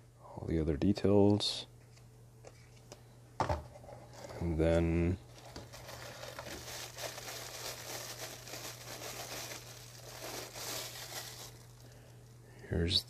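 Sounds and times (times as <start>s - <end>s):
plastic bag crinkling: 5.3s - 12.2s.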